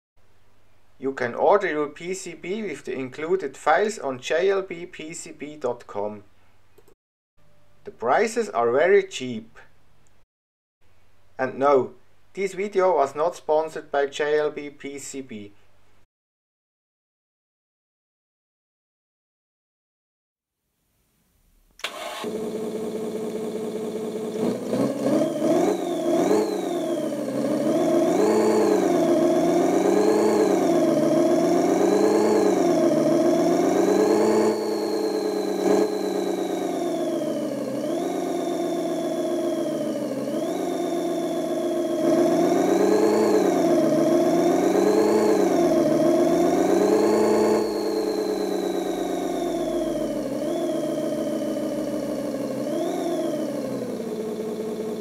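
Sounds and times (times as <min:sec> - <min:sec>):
simulated engine revving on speaker: 0:24.0 - 0:55.0.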